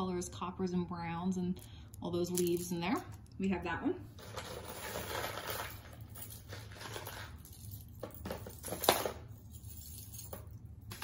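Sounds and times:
jewelry pieces clinking: 1.6 - 3.3, 4.4 - 11.0
jewelry rustling: 1.6 - 3.3, 4.2 - 11.0.

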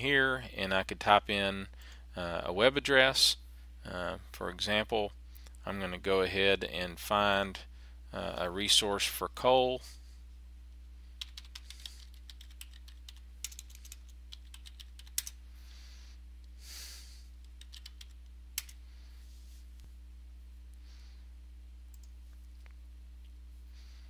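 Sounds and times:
low electrical hum: 0.0 - 24.0
keyboard typing: 11.2 - 15.4, 17.4 - 18.8.

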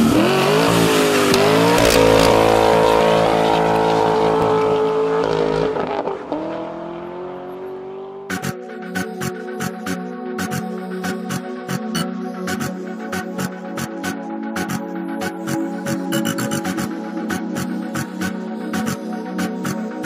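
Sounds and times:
electronic music beat: 0.0 - 6.0, 7.8 - 20.0
car engine at high revs: 0.0 - 11.2.

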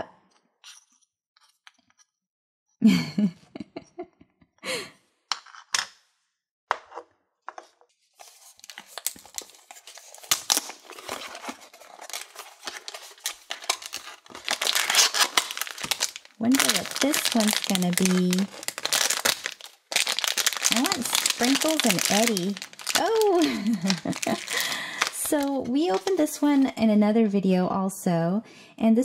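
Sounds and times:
cardboard box crackling: 8.2 - 26.2.

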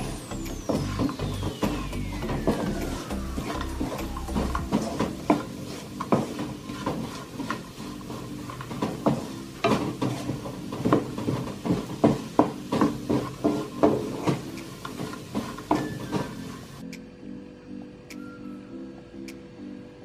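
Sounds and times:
food sizzling: 0.0 - 16.8
spatula scraping a wok: 0.0 - 16.8
spatula knocking against pan: 4.5 - 16.3.

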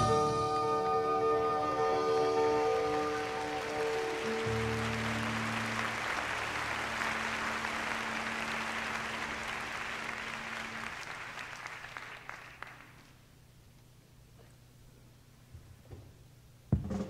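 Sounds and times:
jazz band held notes: 0.0 - 11.2
audience applauding: 2.2 - 13.3.

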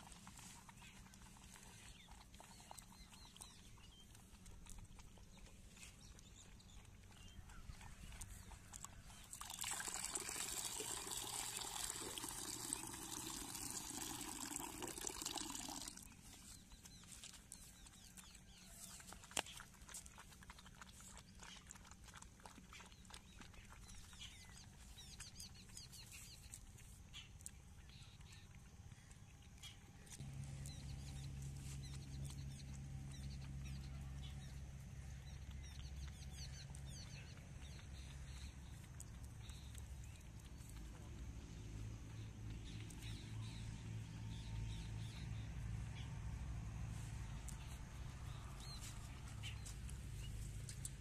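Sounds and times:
puppies lapping and slurping: 0.0 - 51.0
milk splashing into a bowl: 9.3 - 16.1.

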